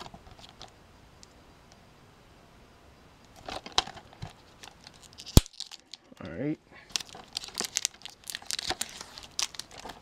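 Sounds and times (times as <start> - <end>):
plastic wrap crinkling: 3.4 - 6.1, 6.9 - 10.0.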